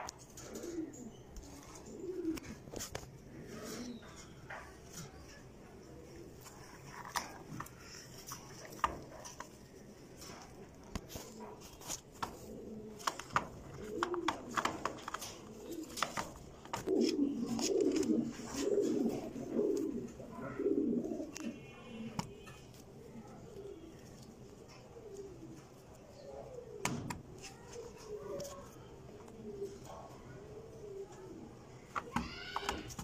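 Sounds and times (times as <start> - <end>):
pigeons cooing: 0.0 - 33.0
sharp clicks and taps: 11.8 - 17.0.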